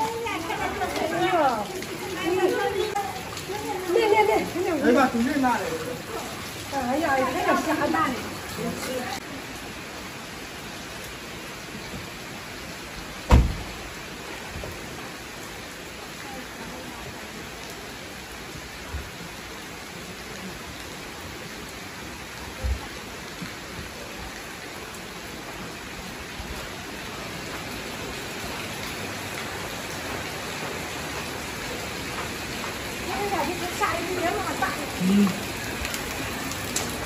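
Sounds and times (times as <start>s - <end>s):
heavy rain: 0.0s - 37.0s
loud thump: 13.3s - 13.7s.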